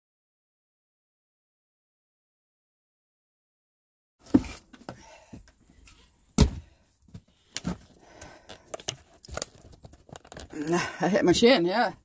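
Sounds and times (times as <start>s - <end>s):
firewood thunking and knocking: 6.4s - 7.9s.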